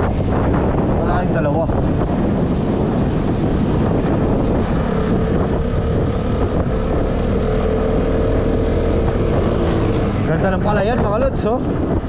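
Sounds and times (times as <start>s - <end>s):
wind rush on microphone: 0.0s - 12.0s
scooter engine running: 2.2s - 10.6s.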